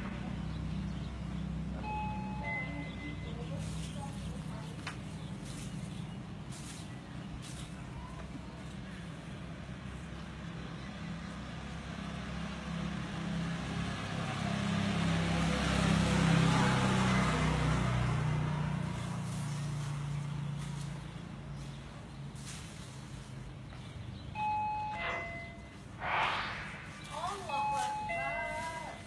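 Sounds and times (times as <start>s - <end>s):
vehicle engine passing: 0.0s - 24.2s, 24.9s - 29.0s.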